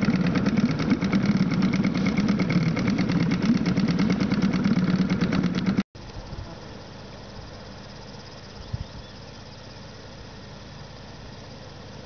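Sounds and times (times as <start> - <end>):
outboard motor puttering: 0.0 - 5.9.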